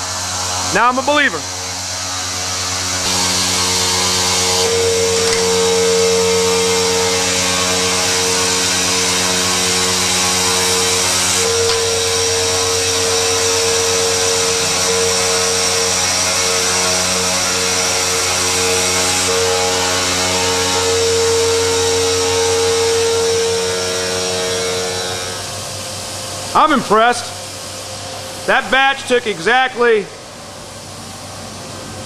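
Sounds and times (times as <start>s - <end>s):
cnc machine cutting stone: 0.0s - 29.7s.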